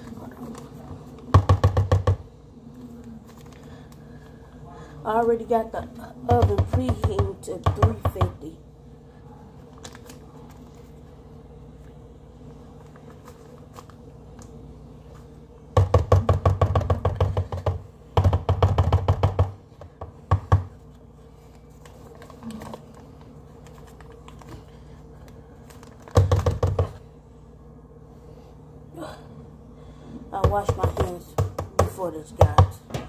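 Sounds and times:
paper wrapper crinkling: 9.6s - 11.1s, 21.4s - 26.1s.

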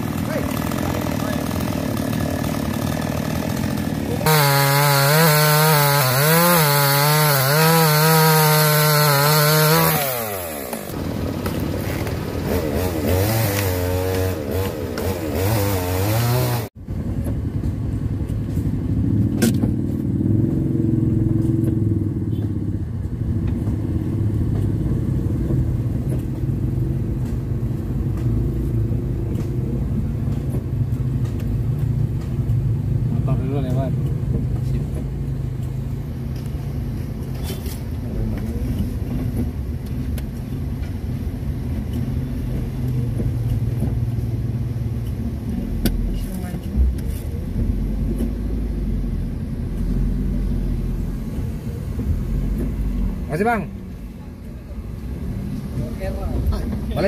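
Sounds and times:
chainsaw cutting wood: 0.0s - 16.7s.

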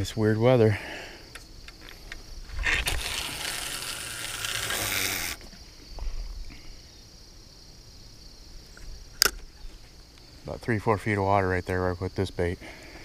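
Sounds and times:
crickets chirring: 0.0s - 13.0s
fishing line hissing off reel: 2.5s - 5.5s.

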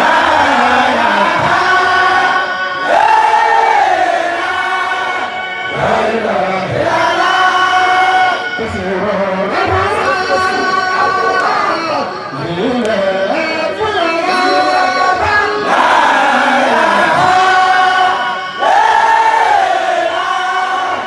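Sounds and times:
men chanting together: 0.0s - 8.4s, 14.3s - 21.0s.

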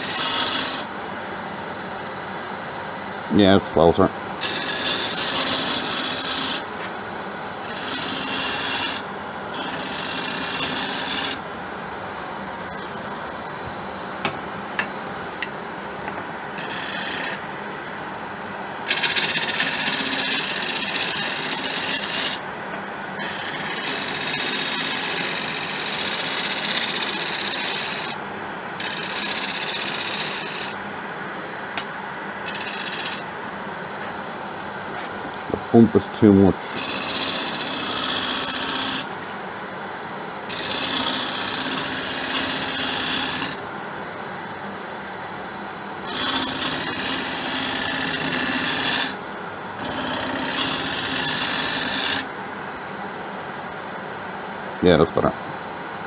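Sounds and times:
gouge cutting spinning wood: 0.0s - 0.9s, 3.8s - 6.7s, 7.6s - 11.4s, 12.5s - 17.6s, 18.8s - 22.4s, 23.2s - 28.2s, 28.8s - 30.8s, 32.4s - 33.3s, 36.6s - 39.1s, 40.5s - 43.7s, 46.0s - 49.2s, 49.8s - 52.3s
wood lathe running: 0.0s - 0.9s, 4.4s - 6.7s, 7.6s - 11.4s, 12.4s - 17.5s, 18.8s - 22.4s, 23.2s - 28.2s, 28.8s - 30.8s, 32.4s - 33.3s, 36.6s - 39.1s, 40.5s - 43.6s, 46.0s - 49.2s, 49.8s - 52.3s.

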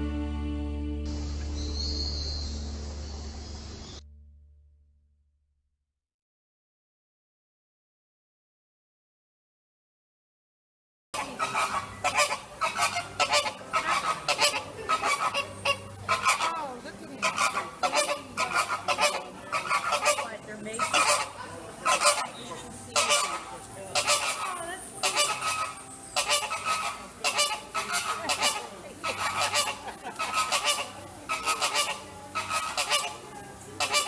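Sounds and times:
flamingos honking: 11.2s - 34.0s.

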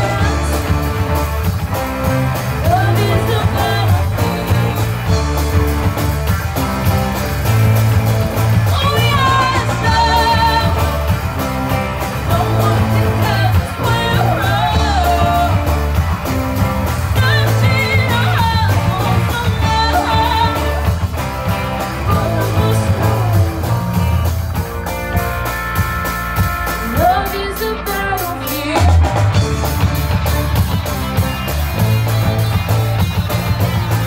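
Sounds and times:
drum kit: 0.0s - 34.0s
electric guitars: 0.0s - 34.0s
girl singing with vibrato: 8.7s - 11.0s, 12.3s - 15.7s, 17.2s - 21.0s, 26.8s - 29.1s.

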